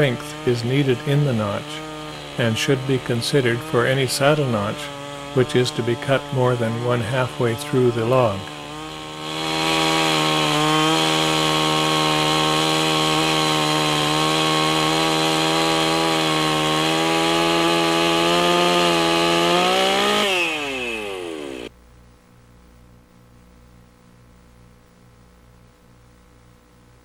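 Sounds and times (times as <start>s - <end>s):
chainsaw cutting log: 0.0s - 21.7s.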